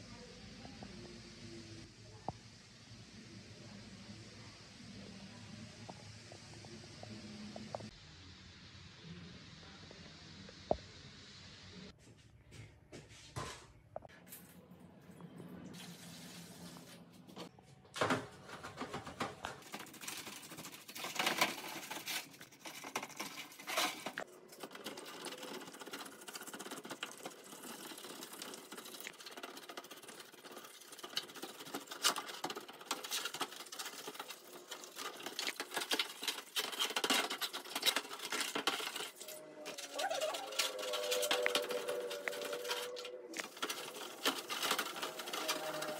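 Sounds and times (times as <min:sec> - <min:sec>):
scratching and clicking hand work: 0:18.6 - 0:45.9.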